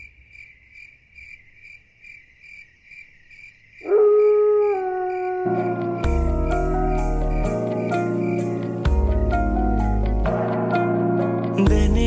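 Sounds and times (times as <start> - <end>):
crickets chirping: 0.0 - 9.9
instrumental music: 5.4 - 12.0.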